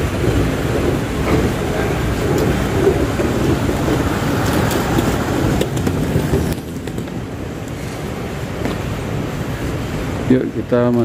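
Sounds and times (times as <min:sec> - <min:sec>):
trolley rolling on tiled floor: 0:00.0 - 0:08.2.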